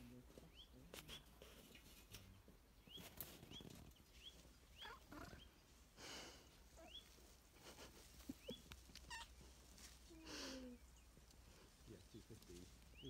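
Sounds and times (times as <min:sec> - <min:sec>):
bird chirping faintly: 0:00.0 - 0:05.7, 0:06.8 - 0:07.3.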